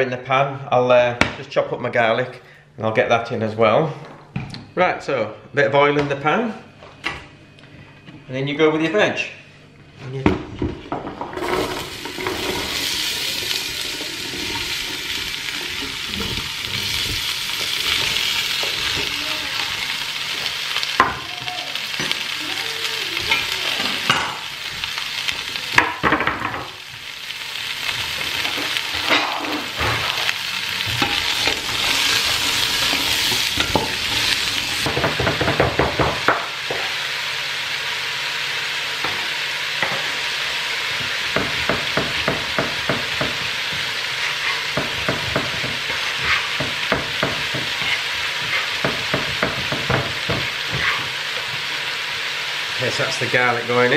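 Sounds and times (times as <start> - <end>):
vegetables sizzling in oil: 11.3 - 53.9
stirring knocks and scrapes: 41.4 - 51.2.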